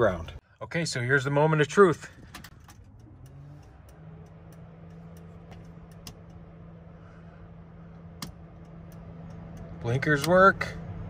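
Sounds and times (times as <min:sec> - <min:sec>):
turn-signal flasher clicking: 0:02.2 - 0:06.5.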